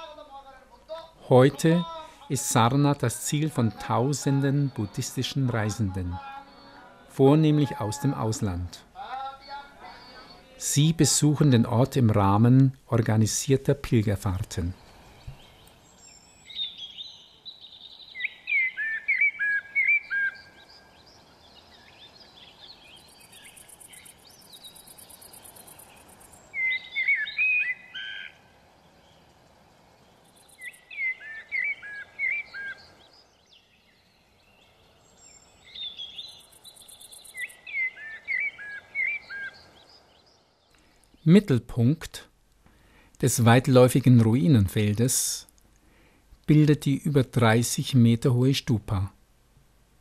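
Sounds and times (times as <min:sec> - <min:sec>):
low steady background noise: 0:00.0 - 0:50.0
songbird whistling: 0:14.8 - 0:20.8, 0:21.7 - 0:28.4, 0:30.4 - 0:32.9, 0:33.5 - 0:39.6.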